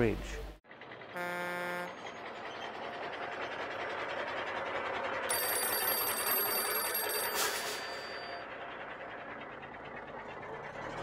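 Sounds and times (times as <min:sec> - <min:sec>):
vehicle running: 0:00.0 - 0:11.0
horn honk: 0:01.1 - 0:02.2
telephone bell ringing: 0:05.3 - 0:08.4.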